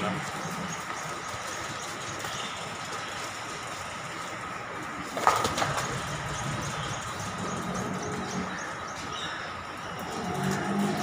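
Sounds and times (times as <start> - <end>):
small birds chirping: 0.0 - 11.0
cows lowing: 9.4 - 11.0.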